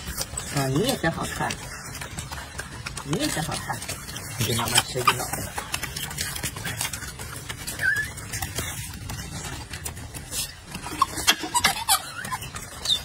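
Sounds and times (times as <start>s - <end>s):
monkey squeak: 3.5s - 9.6s, 10.3s - 13.0s.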